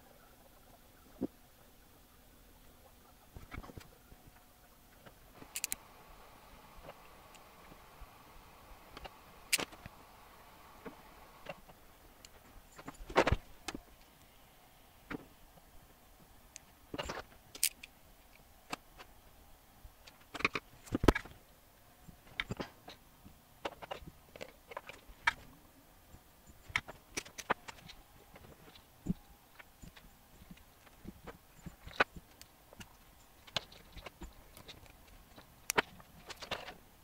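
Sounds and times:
clicks and taps handling electronics: 5.0 - 7.8.

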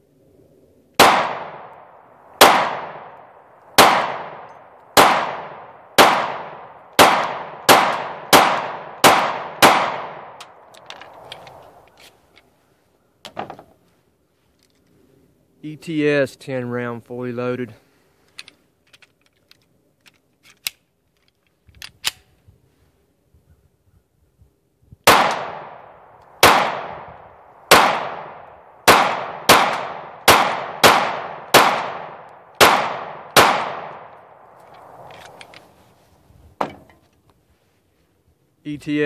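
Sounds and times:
pistol shots with echo: 1.0 - 10.4, 25.1 - 34.2.

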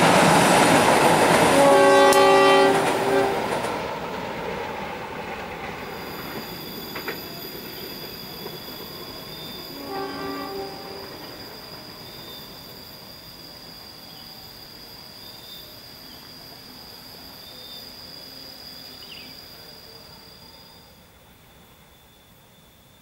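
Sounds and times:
train running: 0.0 - 23.0
train wheels squealing: 5.4 - 23.0
high insect drone: 5.7 - 23.0.

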